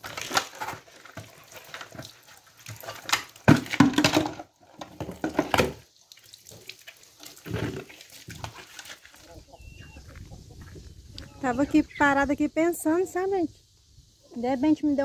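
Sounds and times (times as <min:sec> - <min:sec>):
containers knocking and clattering: 0:00.0 - 0:05.9, 0:07.3 - 0:09.1
water splashing in a sink: 0:00.0 - 0:09.2.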